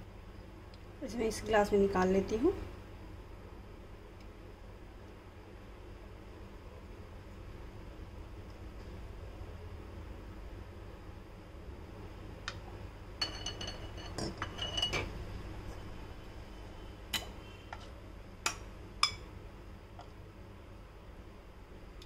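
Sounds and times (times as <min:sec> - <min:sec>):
ladle clinking against glass: 0:13.2 - 0:15.0.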